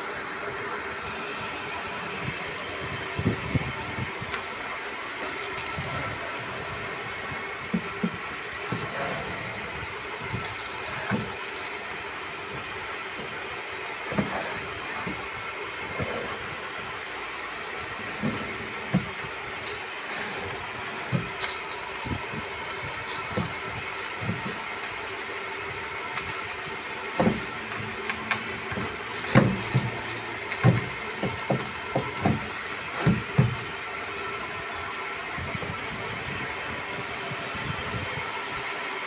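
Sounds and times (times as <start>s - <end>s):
steady background noise: 0.0s - 39.0s
wooden drawers knocking shut: 26.2s - 27.9s, 28.7s - 33.7s.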